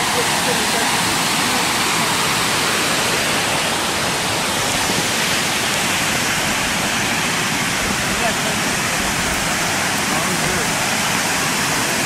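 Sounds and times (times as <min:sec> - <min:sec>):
water rushing over rocks: 0:00.0 - 0:12.0.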